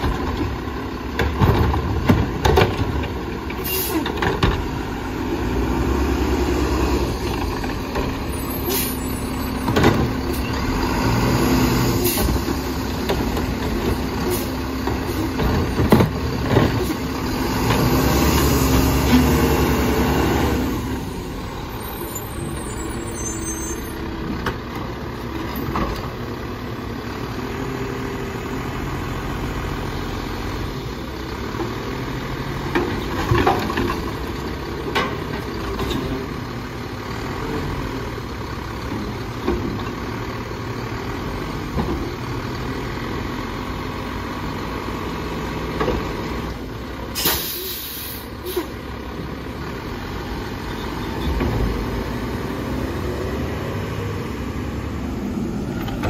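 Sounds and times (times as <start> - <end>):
air brake hiss: 3.6 - 4.0, 8.6 - 9.2, 47.2 - 48.7.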